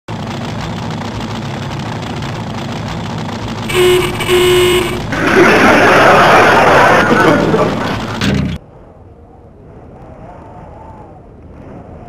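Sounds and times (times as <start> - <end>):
low steady rumble: 0.1 - 12.0
car horn tooting: 3.6 - 5.1.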